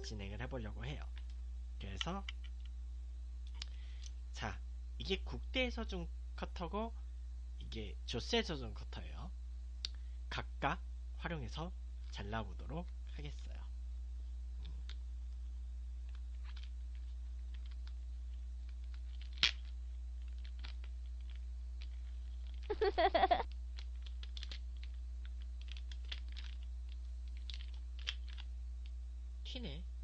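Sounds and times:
plastic crinkling: 16.0s - 28.5s.

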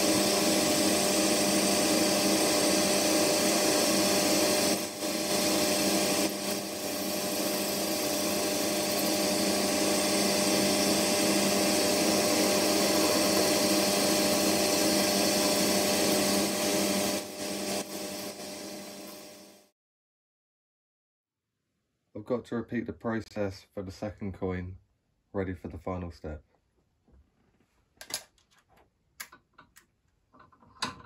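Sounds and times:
boring tool cutting metal: 0.0s - 19.6s
metal lathe running: 0.0s - 19.6s.

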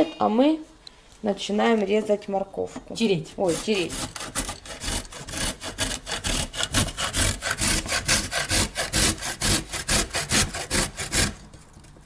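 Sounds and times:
carrot grated on metal grater: 3.4s - 11.4s.

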